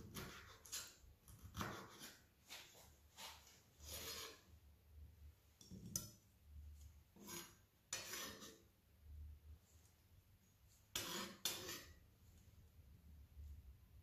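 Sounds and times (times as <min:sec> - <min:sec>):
knife on wooden cutting board: 0:00.0 - 0:04.4, 0:07.2 - 0:08.6, 0:10.9 - 0:12.0.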